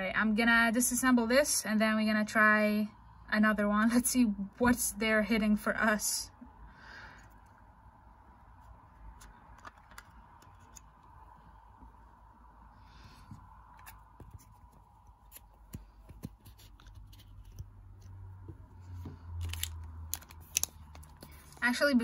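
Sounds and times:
faint steady hum: 0.0s - 22.0s
plastic parts clicking and scratching: 9.1s - 11.1s, 19.4s - 21.6s.

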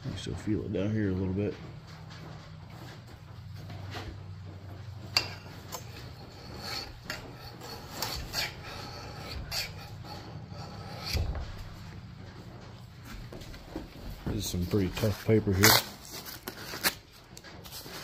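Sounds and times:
steady low hum: 0.0s - 18.0s
hands scraping axe head: 5.2s - 11.6s.

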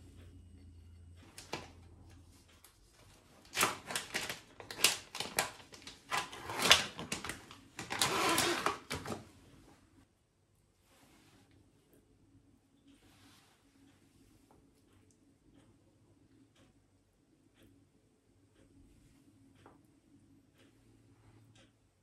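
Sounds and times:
objects clicking and knocking: 3.4s - 9.2s.

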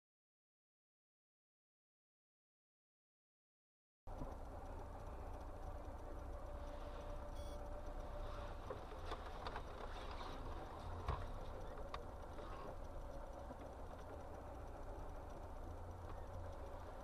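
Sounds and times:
faint clicks: 4.1s - 17.0s
low car engine rumble: 4.1s - 17.0s.

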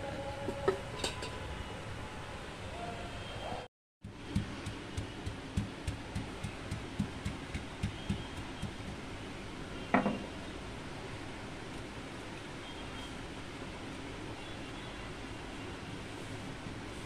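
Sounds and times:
stone pounding meat thuds: 4.1s - 8.9s.

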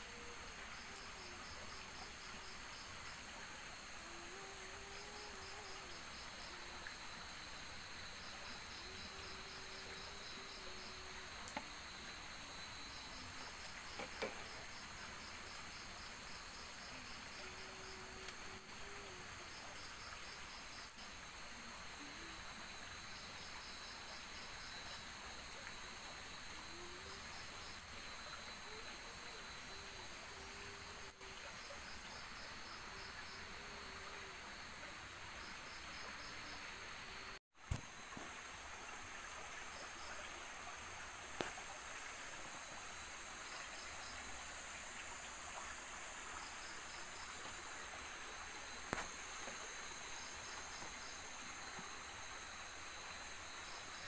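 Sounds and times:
crickets and insects trilling: 0.0s - 54.0s
campfire pops: 13.6s - 14.8s, 37.6s - 38.2s, 48.9s - 49.2s.

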